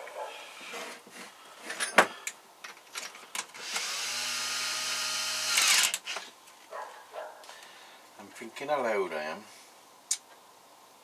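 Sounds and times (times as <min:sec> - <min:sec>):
cordless drill spinning: 0:03.5 - 0:06.3.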